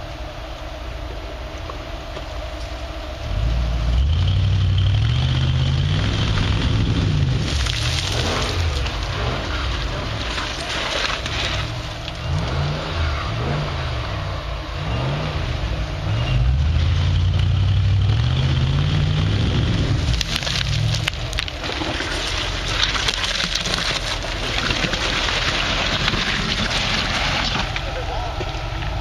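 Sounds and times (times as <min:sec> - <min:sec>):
buggy engine revving: 0:00.0 - 0:29.0
sharp cracks and crunching: 0:06.2 - 0:12.6, 0:20.0 - 0:28.0.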